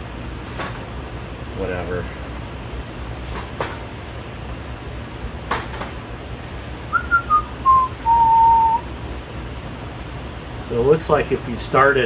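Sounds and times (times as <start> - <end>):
person whistling: 6.9 - 8.9.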